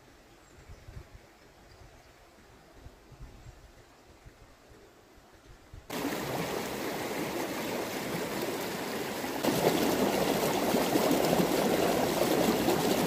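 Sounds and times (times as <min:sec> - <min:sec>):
creek water rushing over rocks: 0:05.9 - 0:13.0.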